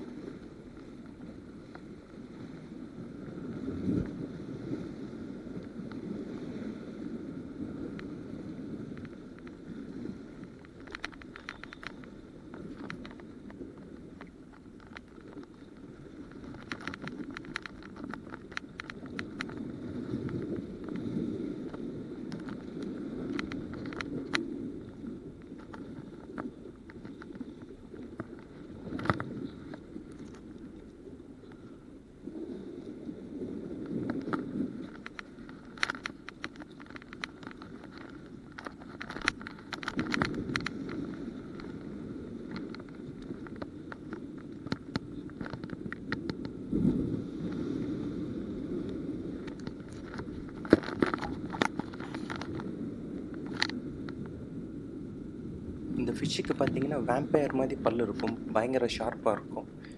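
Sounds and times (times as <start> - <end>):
sea water washing against rocks: 0.0 - 31.4, 32.2 - 54.5, 55.4 - 59.9
wind on microphone: 0.0 - 59.9
light clicks: 10.6 - 13.3, 34.0 - 41.8.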